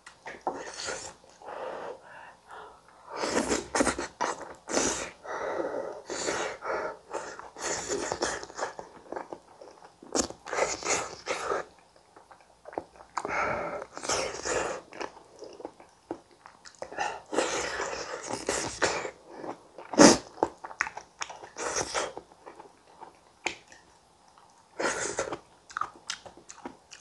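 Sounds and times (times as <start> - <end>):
chewing and mouth noises: 7.3 - 27.0.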